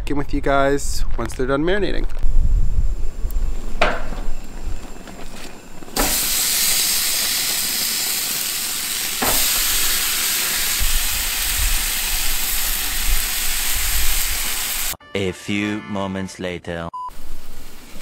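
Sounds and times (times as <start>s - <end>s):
chicken sizzling on a grill: 5.9s - 15.0s.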